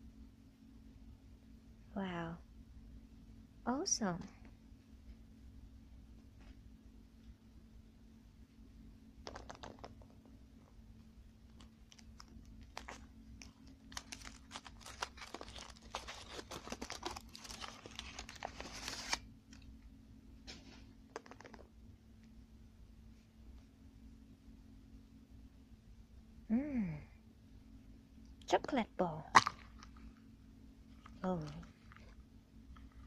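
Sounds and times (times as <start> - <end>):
foil wrapper crinkling and tearing: 11.6 - 19.2.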